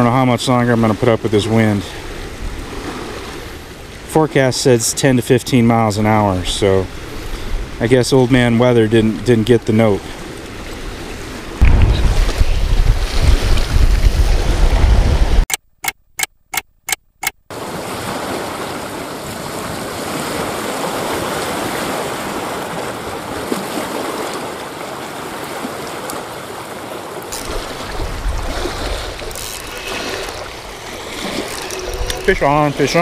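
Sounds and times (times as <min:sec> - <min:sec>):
waves breaking on rocky shore: 0:00.0 - 0:04.5, 0:17.5 - 0:33.0
wind buffeting microphone: 0:10.0 - 0:15.5, 0:27.4 - 0:33.0
clock ticking: 0:15.5 - 0:17.4.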